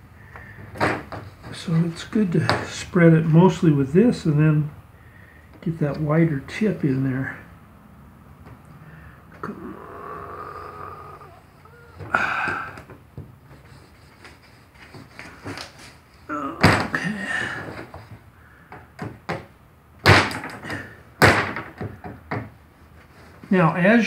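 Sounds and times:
sharp knocks: 18.7 - 22.6.

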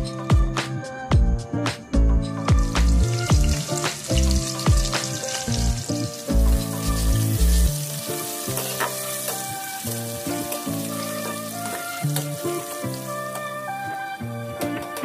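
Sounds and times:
background music with a beat: 0.0 - 15.0
hot oil sizzling in a pan: 2.5 - 14.2.

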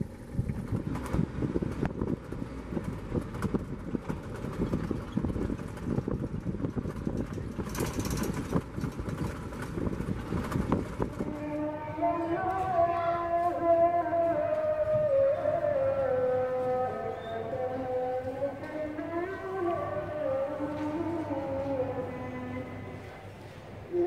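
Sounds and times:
vehicle engine rumble: 0.0 - 24.0
rattles and knocks: 0.4 - 11.4.

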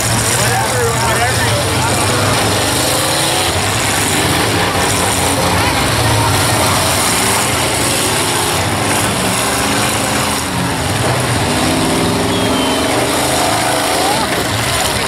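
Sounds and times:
truck engines revving: 0.0 - 15.0.

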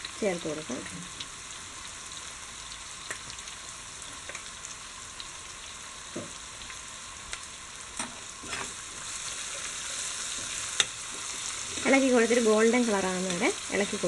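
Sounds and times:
onions sizzling in oil: 0.0 - 14.0
spoon scraping a pan: 8.0 - 12.4.

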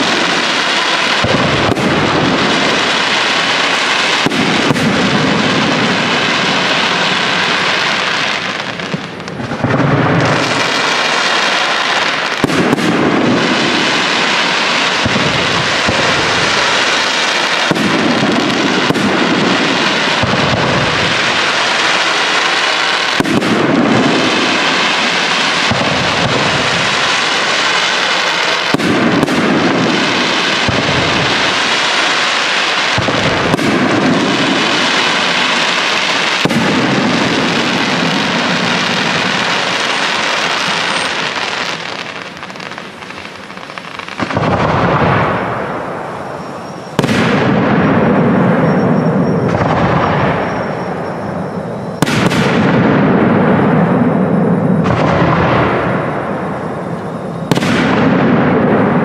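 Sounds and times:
fireworks booming: 0.0 - 59.0
fireworks hiss and crackle: 0.0 - 59.0.

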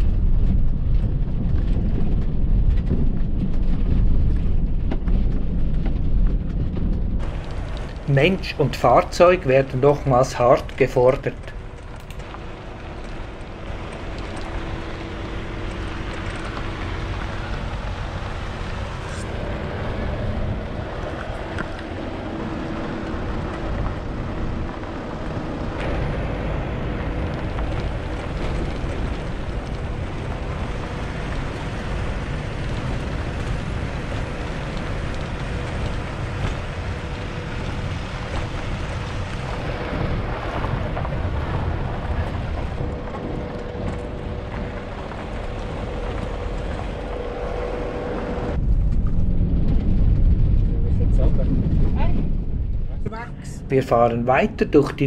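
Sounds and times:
wind rush on microphone: 0.0 - 54.1
faint steady hum: 0.0 - 55.0
tyres rumbling on gravel: 0.0 - 55.0.

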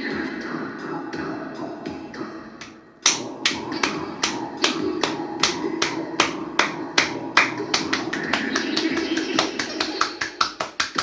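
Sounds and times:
electronic drum loop: 0.0 - 11.0
synth notes switching octaves: 0.0 - 11.0.

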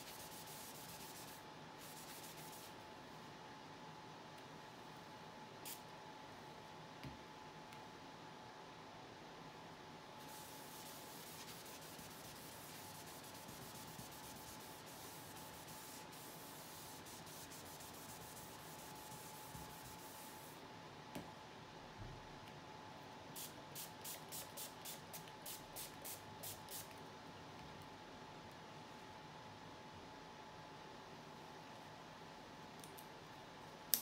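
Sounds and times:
faint high hum: 0.0 - 34.0
tissue rubbing on paper: 10.3 - 20.5.

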